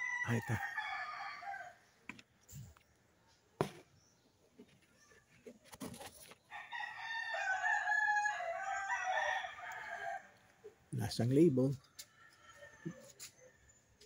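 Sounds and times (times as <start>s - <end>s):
rooster crowing: 0.0s - 1.8s, 6.5s - 10.4s, 12.2s - 13.3s.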